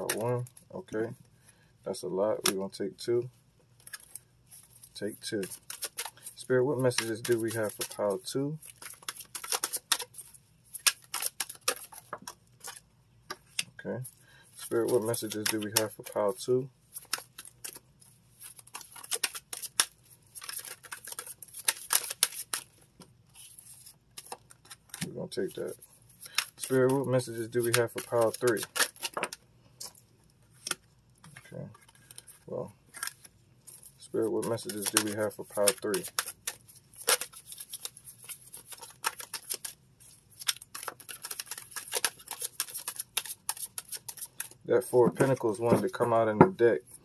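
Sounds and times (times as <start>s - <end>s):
cards being shuffled: 0.0s - 0.6s, 3.8s - 46.6s.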